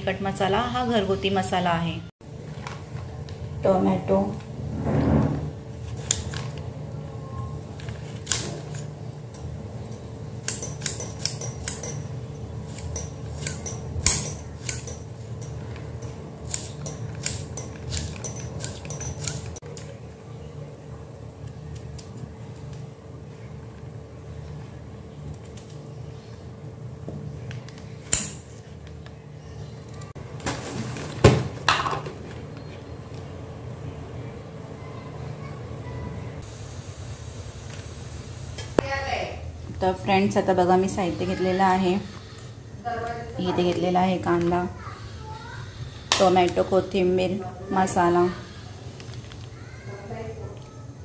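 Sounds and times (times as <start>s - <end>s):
knife blade clicking and tapping: 10.4s - 12.0s.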